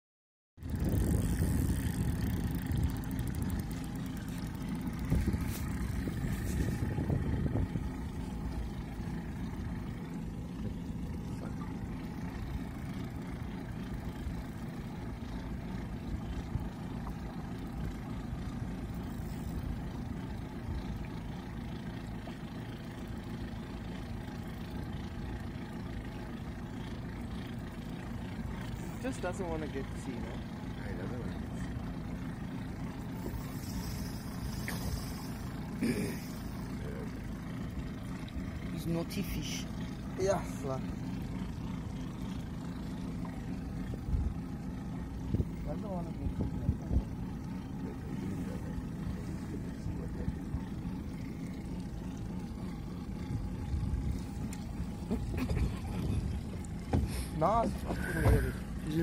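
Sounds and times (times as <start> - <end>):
outboard motor running: 0.6 - 59.0.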